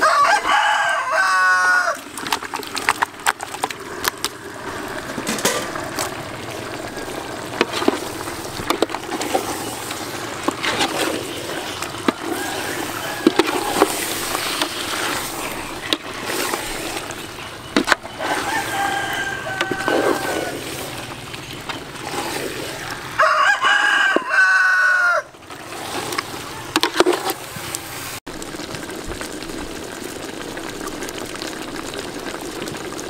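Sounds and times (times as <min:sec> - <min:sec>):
metal ladle scraping a pot: 0:05.1 - 0:06.2, 0:07.0 - 0:23.2, 0:25.5 - 0:27.7.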